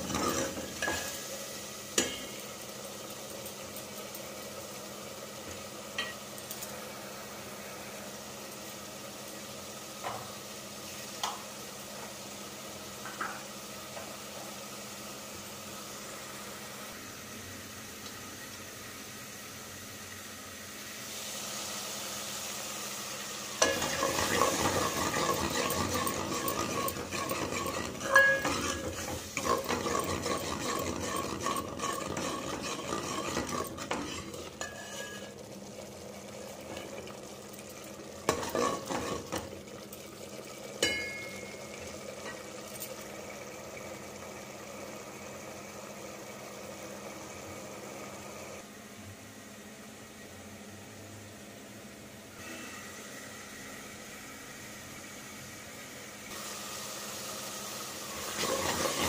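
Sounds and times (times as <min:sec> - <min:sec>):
metal spoon stirring in a pan: 0:00.0 - 0:01.2, 0:23.6 - 0:35.4, 0:38.2 - 0:39.5, 0:58.3 - 0:59.0
sizzling: 0:00.0 - 0:48.9, 0:52.3 - 0:59.0
spoon clinking against pan: 0:27.9 - 0:28.9, 0:40.8 - 0:41.8.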